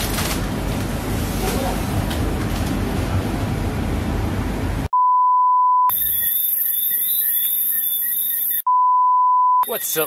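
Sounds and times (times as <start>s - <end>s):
electronic beep tone: 4.9s - 10.0s.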